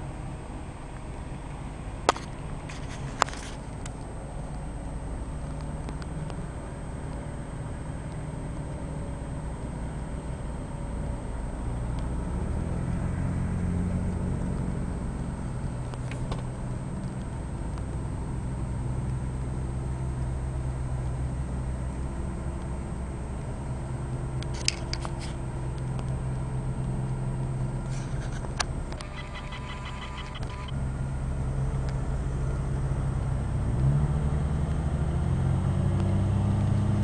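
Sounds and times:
car engine hum inside cabin: 0:00.0 - 0:37.0
sharp clicks: 0:28.4 - 0:30.7.

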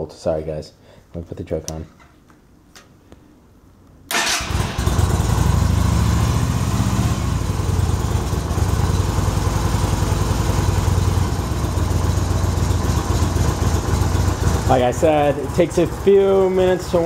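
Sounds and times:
motorcycle engine starting and idling: 0:04.1 - 0:17.0.

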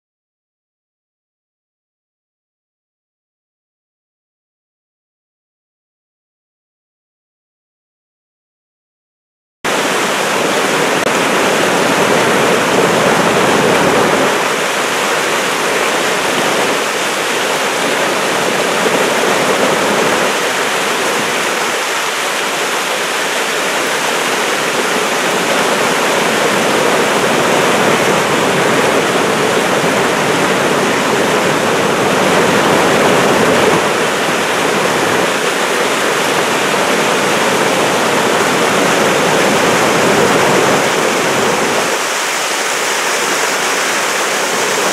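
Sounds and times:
river water rushing over dam: 0:09.7 - 0:44.9.

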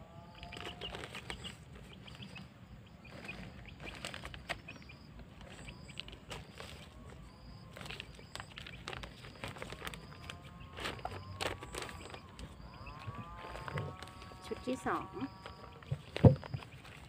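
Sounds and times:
bird chirping: 0:00.0 - 0:17.0
soil crumbling into plastic bag: 0:05.4 - 0:17.0.

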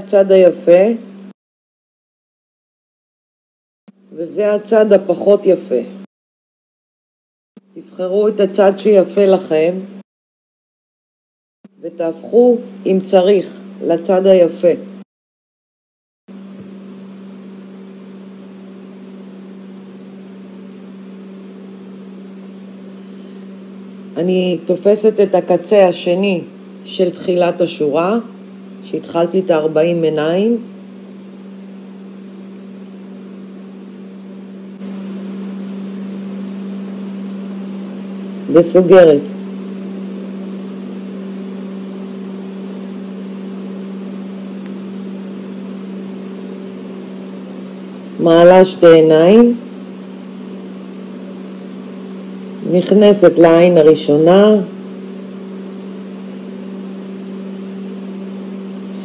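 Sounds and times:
electrical hum: 0:00.0 - 0:01.4, 0:03.9 - 0:06.1, 0:07.6 - 0:10.0, 0:11.6 - 0:15.1, 0:16.3 - 0:59.0.

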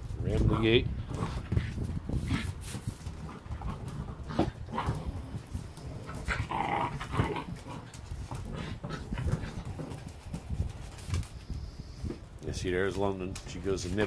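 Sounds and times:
dogs growling: 0:00.3 - 0:11.0.

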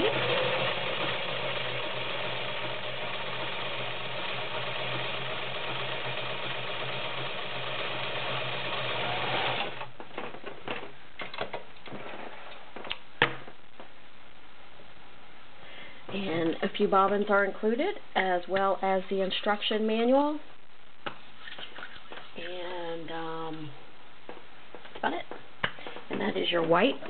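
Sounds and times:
sewing machine running: 0:00.0 - 0:09.9.

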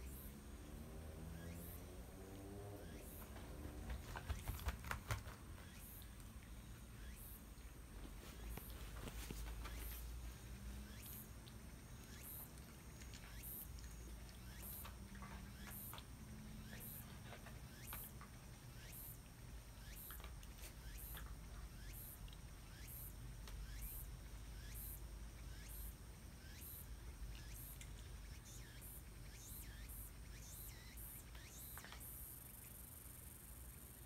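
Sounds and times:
low room hum: 0:00.0 - 0:34.0
wet licking clicks: 0:11.0 - 0:16.2.

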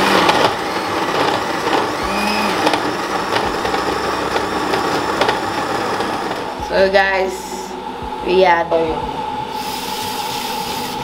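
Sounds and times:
blender running at full speed: 0:00.0 - 0:06.7, 0:09.5 - 0:11.0.

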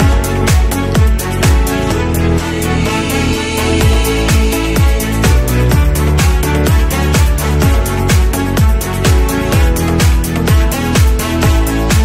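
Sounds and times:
kick drum: 0:00.0 - 0:12.0
sustained synth chords: 0:01.6 - 0:08.0.

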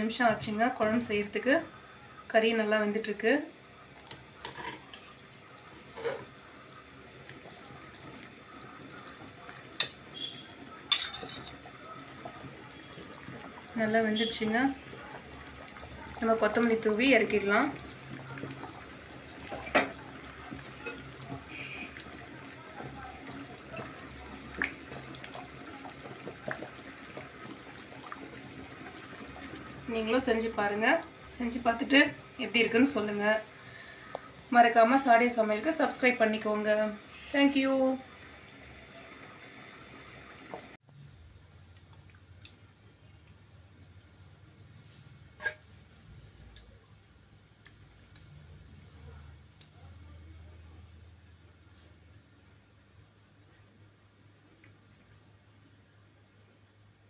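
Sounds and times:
curry bubbling in a pot: 0:00.0 - 0:51.5
utensils knocking against pot: 0:10.9 - 0:11.6.

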